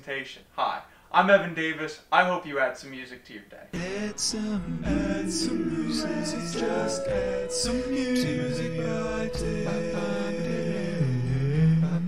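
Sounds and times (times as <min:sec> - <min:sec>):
a cappella vocal harmony jingle: 0:03.8 - 0:12.0.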